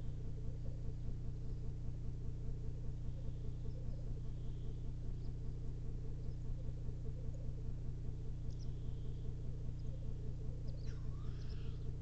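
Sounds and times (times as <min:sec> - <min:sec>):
black grouse bubbling chorus: 0:06.0 - 0:12.0.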